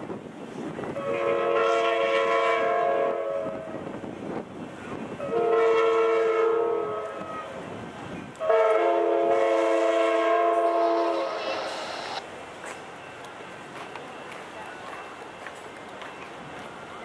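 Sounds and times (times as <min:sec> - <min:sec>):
passing train rumble: 0:00.0 - 0:17.0
train air horn blasts: 0:01.0 - 0:03.8, 0:05.2 - 0:07.6, 0:08.4 - 0:11.8.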